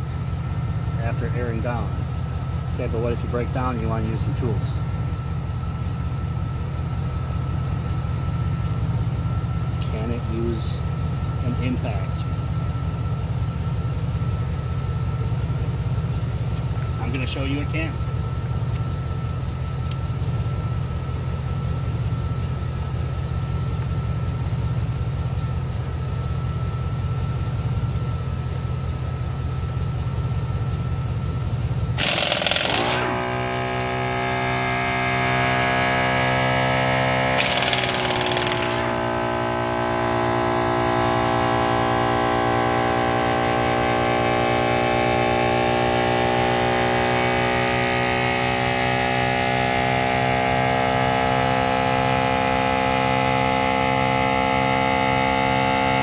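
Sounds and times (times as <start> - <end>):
air compressor running: 28.9 - 56.0
pneumatic impact wrench rattling: 32.0 - 33.9, 36.8 - 39.5.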